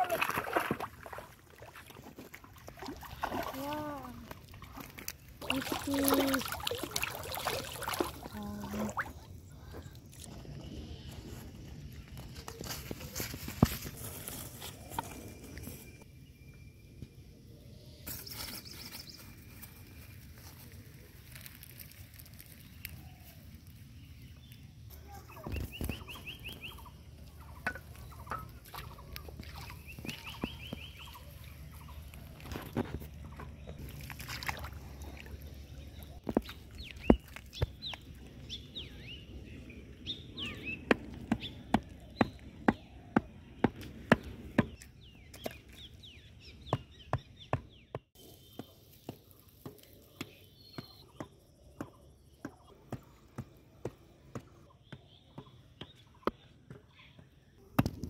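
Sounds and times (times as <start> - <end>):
bird calls: 24.1 - 34.0, 34.6 - 57.7
wooden stakes knocked into mud: 27.6 - 31.2.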